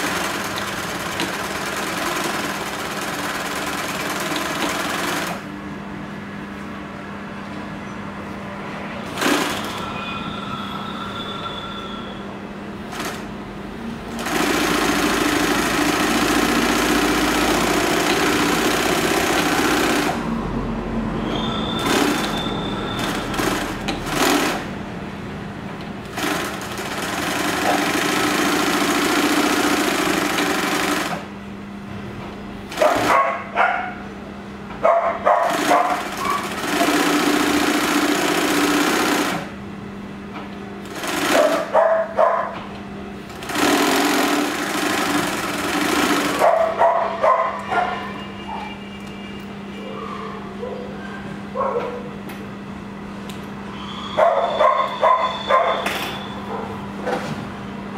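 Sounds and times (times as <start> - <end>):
sewing machine sewing fabric: 0.0 - 5.5, 9.1 - 9.8, 12.9 - 13.3, 14.1 - 20.2, 21.8 - 24.6, 26.1 - 31.3, 32.7 - 33.3, 35.4 - 39.5, 40.8 - 41.8, 43.3 - 46.8
steady motor hum: 0.0 - 10.2, 12.3 - 57.9.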